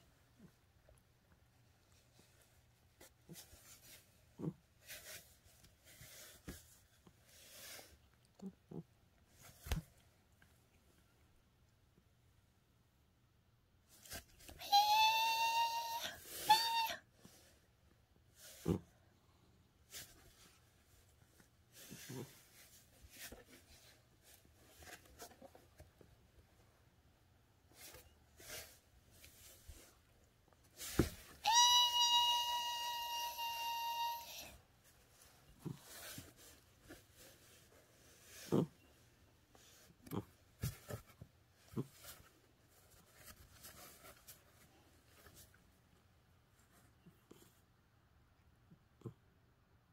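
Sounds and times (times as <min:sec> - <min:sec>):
cat scuffling in cardboard box: 0:34.8 - 0:45.8.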